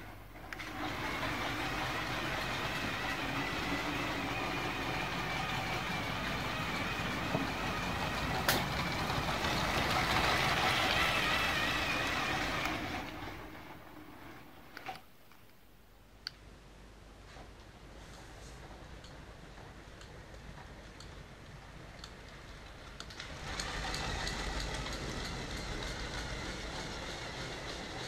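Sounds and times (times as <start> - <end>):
wheels rumbling on plastic track: 0.0 - 15.1, 17.3 - 28.0
electric motor whining: 0.5 - 13.8.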